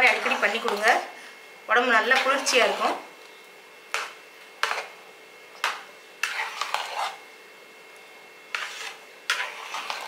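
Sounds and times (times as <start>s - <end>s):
ladle scraping a metal pot: 6.2s - 7.2s, 8.5s - 10.0s.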